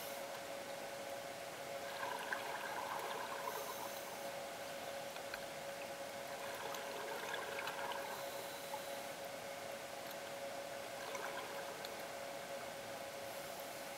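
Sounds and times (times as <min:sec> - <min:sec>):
steady hum: 0:00.0 - 0:13.9
underwater hiss: 0:03.3 - 0:04.2
faint ticks: 0:05.1 - 0:05.9, 0:11.1 - 0:12.1.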